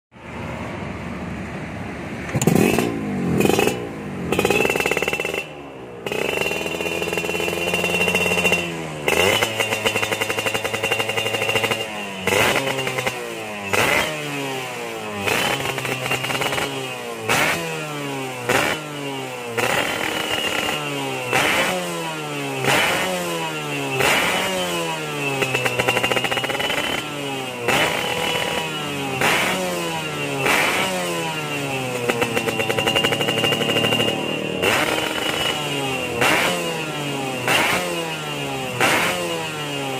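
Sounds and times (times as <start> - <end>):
two-stroke motorcycle engine revving: 2.2 - 39.9.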